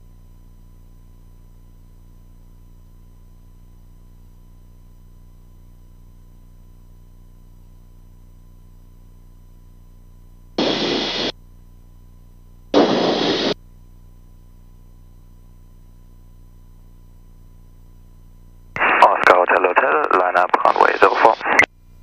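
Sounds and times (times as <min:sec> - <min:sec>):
electrical hum: 0:10.6 - 0:11.3, 0:12.3 - 0:13.6, 0:18.7 - 0:22.0
radio static bursts: 0:10.6 - 0:11.3, 0:12.8 - 0:13.6, 0:18.8 - 0:21.7.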